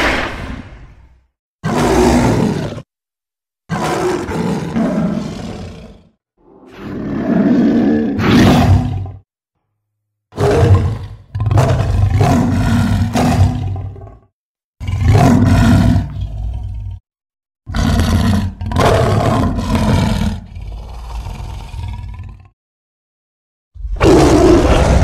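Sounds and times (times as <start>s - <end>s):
big cat roars: 1.6s - 2.9s, 3.7s - 9.3s, 10.4s - 17.0s, 17.7s - 22.6s, 23.8s - 25.0s.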